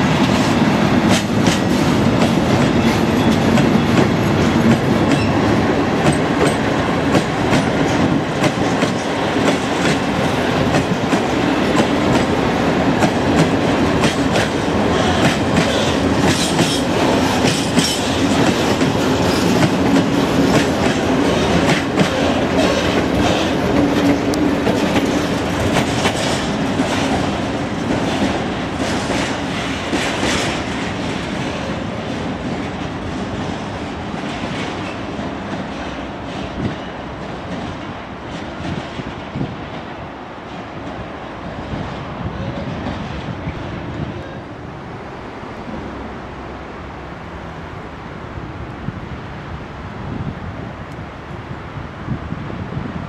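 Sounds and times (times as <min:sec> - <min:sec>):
freight train rumbling past: 0:00.0 - 0:53.0
wheels clacking over rail joints: 0:00.1 - 0:41.5.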